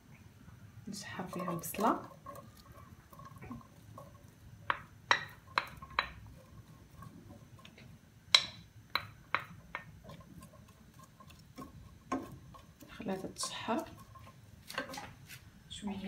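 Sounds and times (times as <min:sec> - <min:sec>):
onion sizzling in oil: 0:00.9 - 0:15.6
spoon tapping against a pan: 0:03.1 - 0:06.3, 0:08.3 - 0:10.2.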